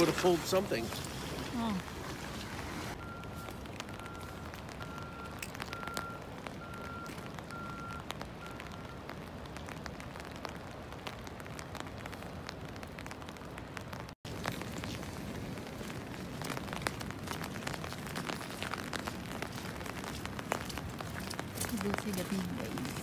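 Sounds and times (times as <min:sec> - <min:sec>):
rain: 0:00.0 - 0:23.0
wind: 0:00.0 - 0:23.0
faint beep: 0:03.0 - 0:09.0
raindrop ticks: 0:03.0 - 0:23.0.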